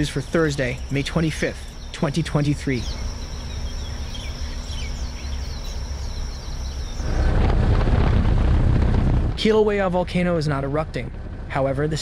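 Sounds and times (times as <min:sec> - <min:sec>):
high insect drone: 0:00.0 - 0:07.2
bird chirps: 0:00.0 - 0:07.3
low rushing rumble: 0:00.0 - 0:12.0
low wind rumble: 0:00.0 - 0:12.0.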